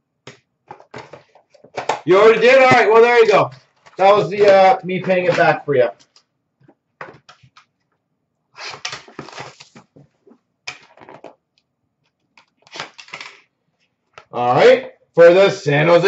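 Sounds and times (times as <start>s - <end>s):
cardboard and wrapping rustling: 8.6s - 11.3s.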